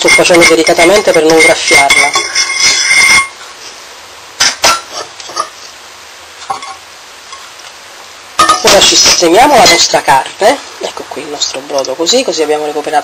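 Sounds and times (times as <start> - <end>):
metal fork scraping frying pan: 0.0 - 3.4
utensils clinking on pan: 0.0 - 3.4, 4.4 - 5.6, 6.5 - 7.4, 8.4 - 9.7.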